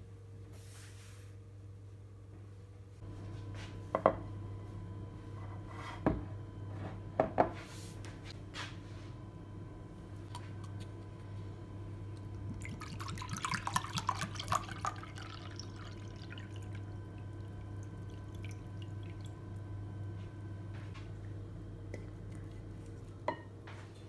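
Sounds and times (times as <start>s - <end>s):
bubbles fizzing: 12.0s - 19.7s
water pouring into glass: 12.2s - 19.5s.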